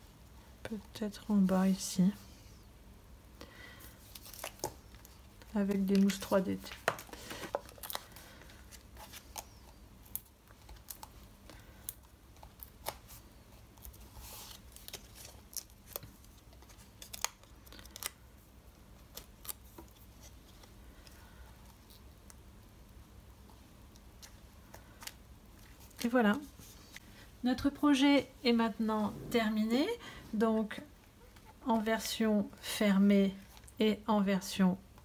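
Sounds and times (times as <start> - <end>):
paper backing rustle: 4.0 - 11.8.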